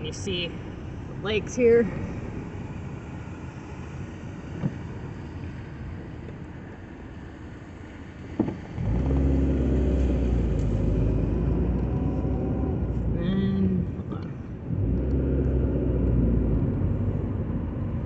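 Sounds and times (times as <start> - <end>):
car engine and road noise: 0.0 - 18.0.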